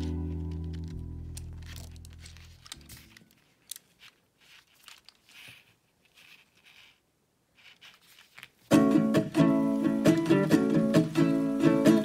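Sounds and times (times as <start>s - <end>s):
hands rustling plastic toy: 0.0s - 12.0s
background music: 8.7s - 12.0s.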